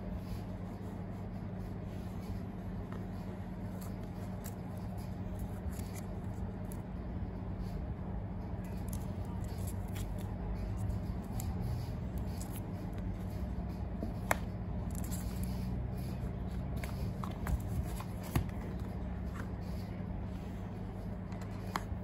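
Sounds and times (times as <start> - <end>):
paper and cardboard rustling: 2.2 - 6.8, 8.7 - 20.0.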